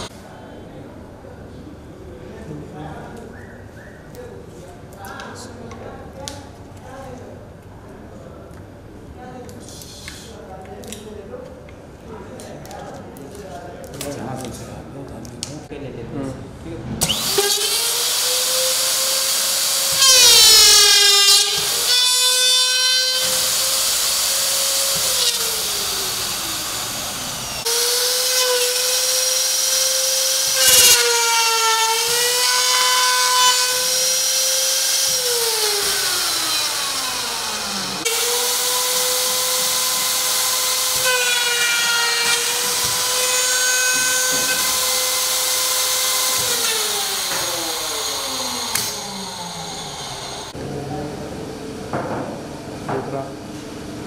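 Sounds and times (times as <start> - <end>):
router motors whining: 17.0 - 50.6.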